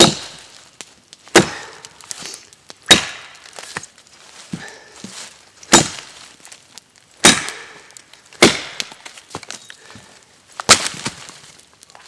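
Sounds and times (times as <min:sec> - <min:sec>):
machete chopping into log: 0:00.0 - 0:00.4, 0:01.3 - 0:01.6, 0:02.9 - 0:03.3, 0:05.7 - 0:06.0, 0:07.2 - 0:07.6, 0:08.4 - 0:08.9, 0:10.6 - 0:11.2.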